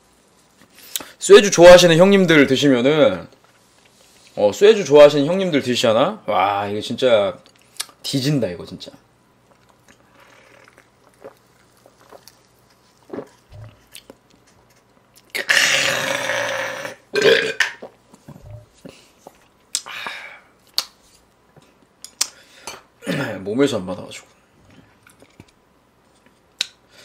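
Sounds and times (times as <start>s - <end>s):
person swallowing drink: 9.5s - 14.3s, 15.2s - 19.0s
man belching: 15.4s - 17.8s.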